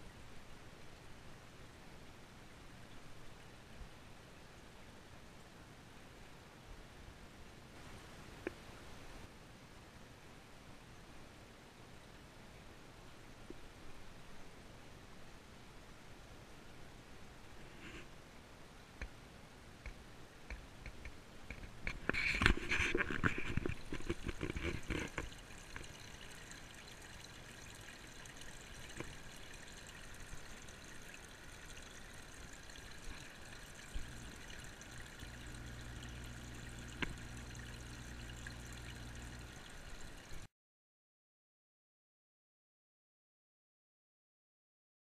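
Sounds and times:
low steady hum: 0:00.0 - 0:40.5
water pouring and trickling: 0:21.5 - 0:40.5
water splashing: 0:22.9 - 0:40.5.

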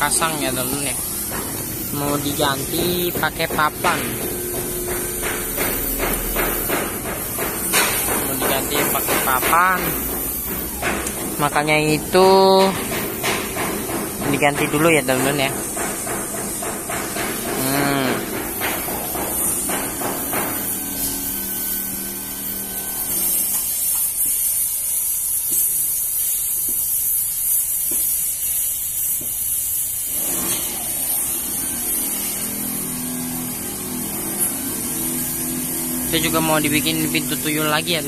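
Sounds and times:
steady high hiss: 0:05.2 - 0:30.2.

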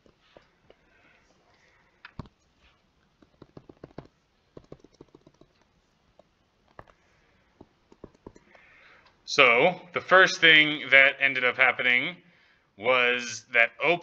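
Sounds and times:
stylus tapping on tablet screen: 0:02.1 - 0:02.4, 0:03.2 - 0:07.0, 0:07.6 - 0:08.7.

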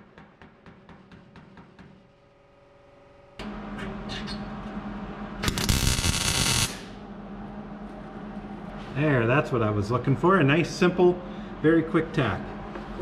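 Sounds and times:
steady hum: 0:00.0 - 0:13.0
crackling welding arc: 0:05.4 - 0:07.0.

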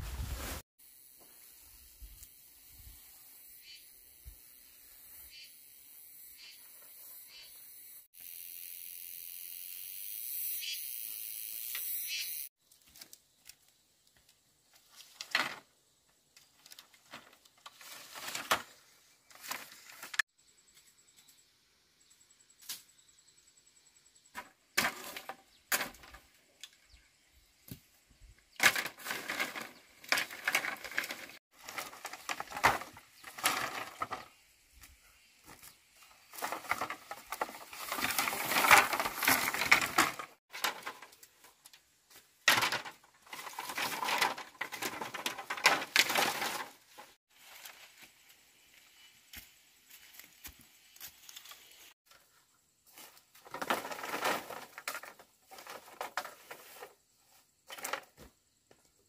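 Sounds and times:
rustling: 0:00.0 - 0:00.6, 0:28.6 - 0:41.6.

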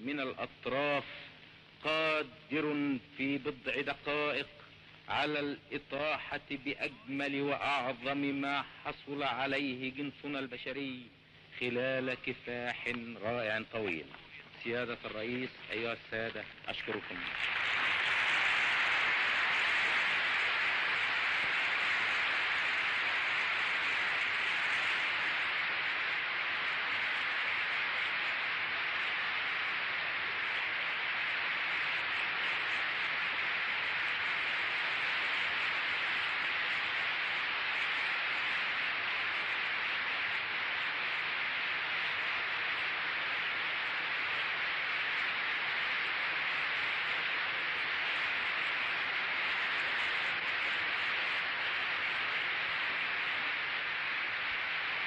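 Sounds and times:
crowd applauding: 0:16.9 - 0:40.6.

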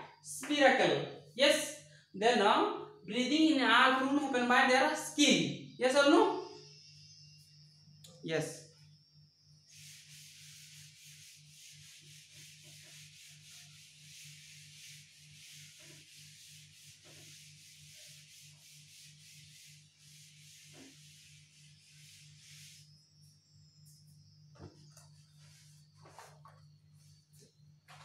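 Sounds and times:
cloth rubbing on chalkboard: 0:09.6 - 0:23.4, 0:24.6 - 0:28.0.

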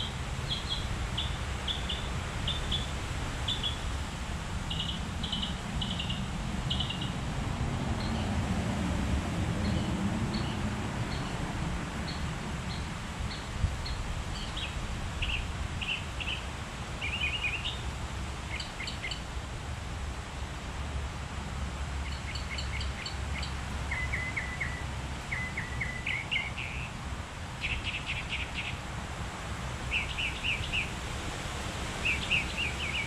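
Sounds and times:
bird chirping: 0:00.0 - 0:03.9, 0:04.7 - 0:07.2, 0:09.6 - 0:11.4, 0:12.1 - 0:17.8, 0:18.5 - 0:19.2, 0:22.0 - 0:26.9, 0:27.6 - 0:28.8, 0:29.9 - 0:30.9, 0:32.0 - 0:33.0
gusty wind on microphone: 0:00.0 - 0:21.7.

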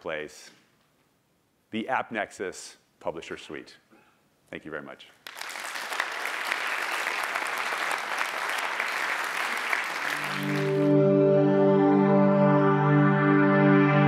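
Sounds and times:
audience applauding: 0:05.2 - 0:11.0.

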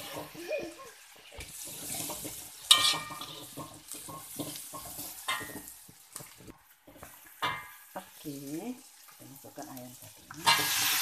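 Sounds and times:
aromatics sizzling in hot oil: 0:00.0 - 0:11.0
metal spatula scraping wok: 0:01.6 - 0:05.8, 0:10.2 - 0:11.0
spatula clanging on wok: 0:01.7 - 0:06.4, 0:07.4 - 0:07.9.

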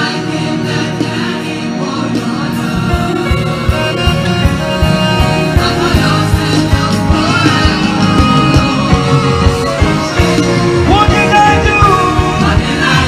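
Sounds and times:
choir singing with band: 0:00.0 - 0:13.0
steady drum beat: 0:00.0 - 0:13.0.

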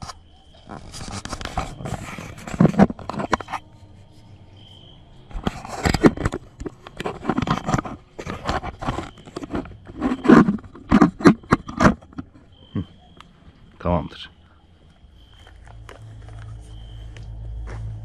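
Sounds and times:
handling scraping and clicking: 0:00.0 - 0:04.3, 0:05.3 - 0:12.6.

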